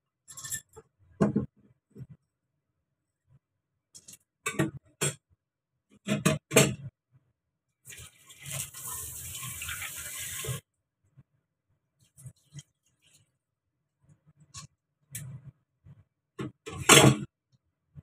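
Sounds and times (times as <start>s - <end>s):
kitchen tap running: 7.9s - 10.6s.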